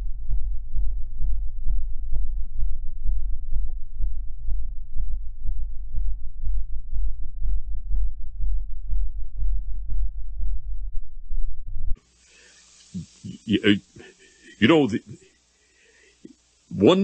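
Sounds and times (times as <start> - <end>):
low droning hum: 0.0 - 12.0.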